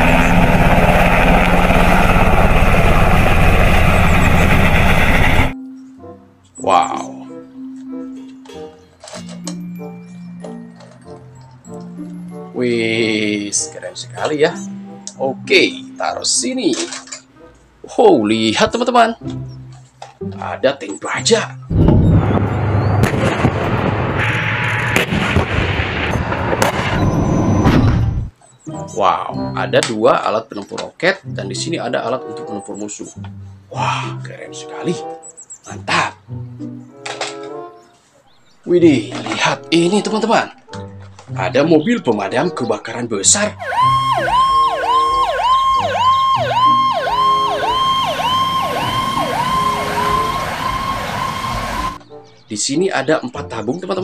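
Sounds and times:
tank engine rumble: 0:00.0 - 0:05.6, 0:43.6 - 0:52.0
tank gun firing: 0:21.7 - 0:28.2.

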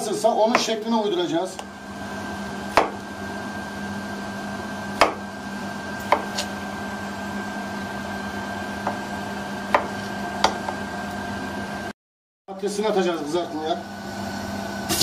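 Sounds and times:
knife chopping on cutting board: 0:00.5 - 0:00.8, 0:02.7 - 0:03.0, 0:05.0 - 0:05.3, 0:06.0 - 0:06.6, 0:08.8 - 0:09.0, 0:09.7 - 0:10.8
steady low hum: 0:12.5 - 0:15.0.

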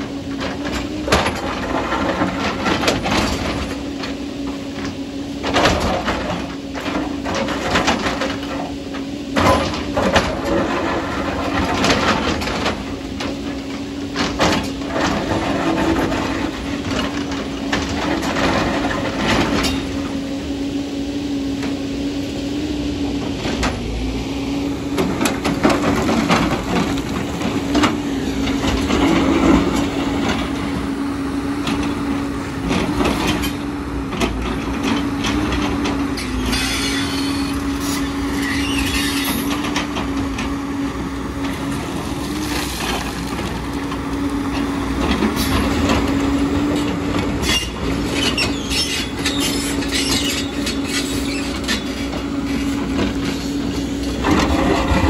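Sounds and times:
excavator engine humming: 0:00.0 - 0:55.0
steel bucket scraping rock: 0:54.1 - 0:55.0.

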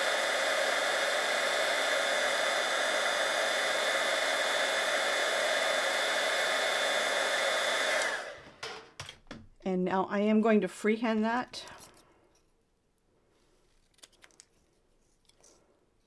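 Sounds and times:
heat tool blowing hot air: 0:00.0 - 0:08.6.

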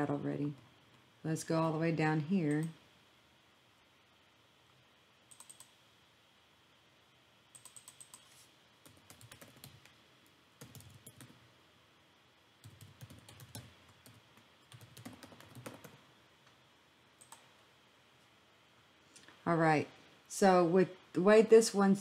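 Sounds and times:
typing on computer keyboard: 0:05.3 - 0:05.8, 0:07.5 - 0:10.0, 0:10.6 - 0:11.4, 0:12.6 - 0:16.0.

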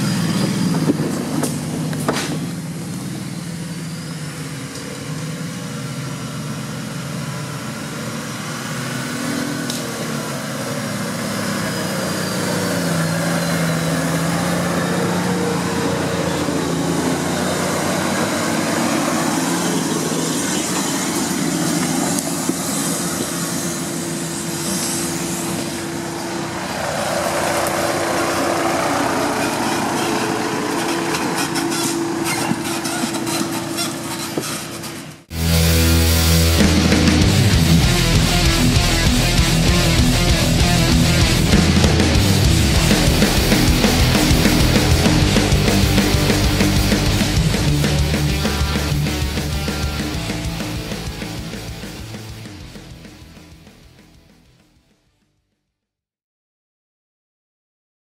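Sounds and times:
off-road vehicle engine under load: 0:00.0 - 0:55.1.

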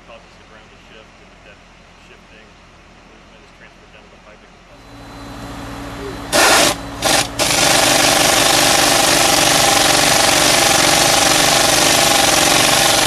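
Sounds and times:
pneumatic hammer hammering: 0:06.0 - 0:13.0.

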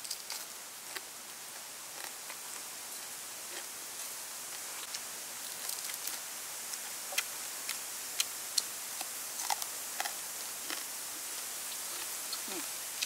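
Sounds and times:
crispy food crackling while chewed: 0:00.0 - 0:13.0
steady high hiss: 0:00.0 - 0:13.0.

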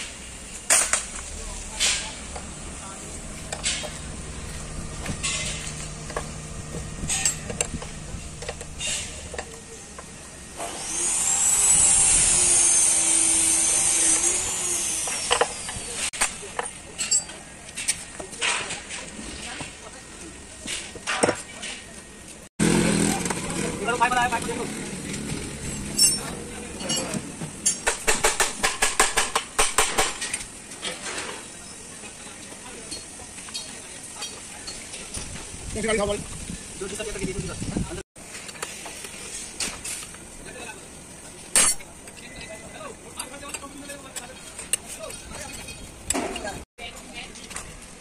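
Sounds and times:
low steady hum: 0:01.0 - 0:10.4
metal tools clinking on metal: 0:03.2 - 0:09.6, 0:16.5 - 0:18.8, 0:25.6 - 0:27.9, 0:32.8 - 0:35.3, 0:41.5 - 0:46.6
loud hiss with whistle: 0:10.5 - 0:16.0.

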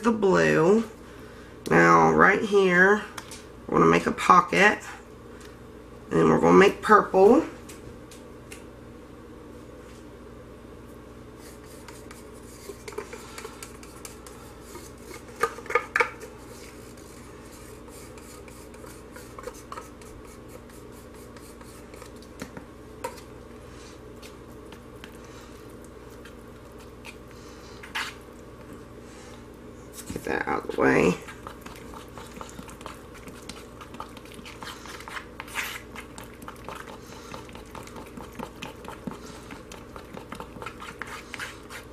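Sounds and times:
steady low hum: 0:00.0 - 0:41.9
utensils scraping a crock pot: 0:11.5 - 0:22.2, 0:30.5 - 0:41.9.

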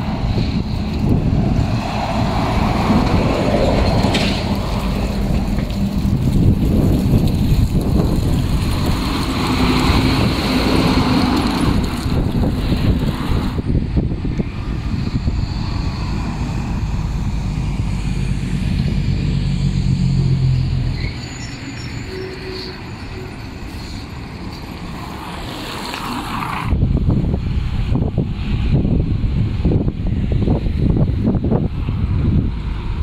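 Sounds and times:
tyres rolling past: 0:00.0 - 0:13.6
diesel trucks driving past: 0:00.0 - 0:33.0.

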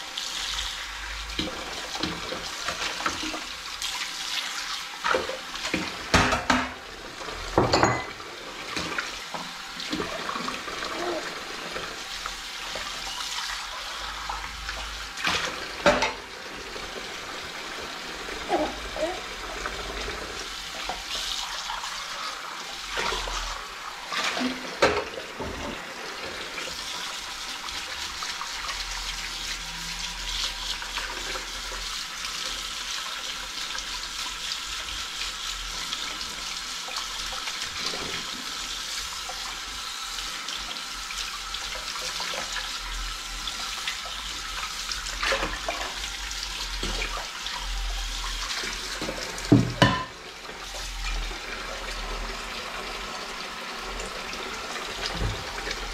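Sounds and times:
tap running into a sink: 0:05.0 - 0:06.8, 0:14.2 - 0:16.2, 0:24.3 - 0:26.4, 0:48.5 - 0:51.6, 0:54.8 - 0:55.9
dishes clinking and knocking: 0:06.1 - 0:06.8, 0:07.6 - 0:08.2, 0:49.5 - 0:50.2.

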